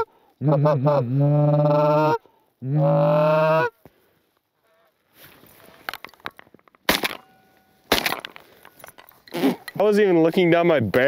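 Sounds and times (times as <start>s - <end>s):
shotgun blast: 6.9s - 7.2s.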